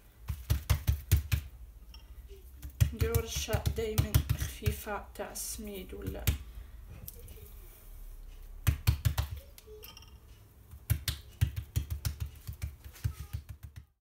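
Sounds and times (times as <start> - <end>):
hand patting dough: 0.0 - 5.0, 5.7 - 6.5, 8.5 - 9.7, 10.6 - 14.0.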